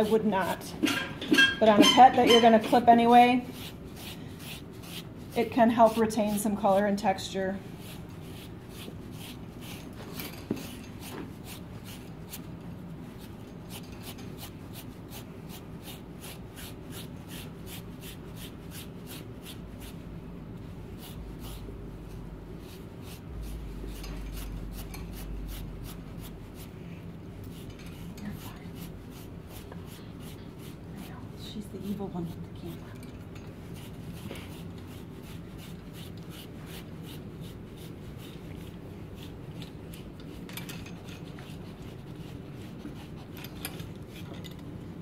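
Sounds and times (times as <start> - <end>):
rake scraping through dog fur: 1.7 - 20.0, 20.9 - 26.8, 27.4 - 32.7, 33.5 - 44.3.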